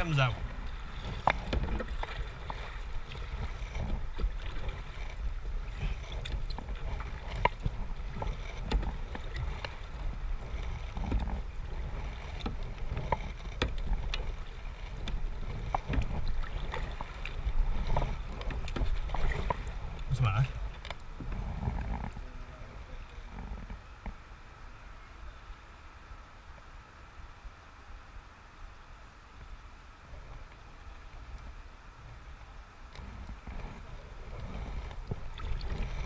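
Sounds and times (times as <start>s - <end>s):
paddle splashes and drips: 0.0s - 24.3s, 29.3s - 36.0s.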